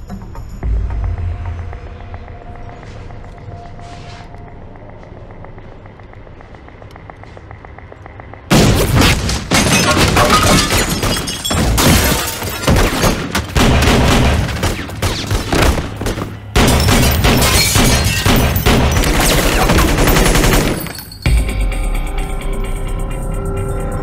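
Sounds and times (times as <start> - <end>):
low drone: 0.4 - 8.5
dense gunfire: 12.7 - 20.8.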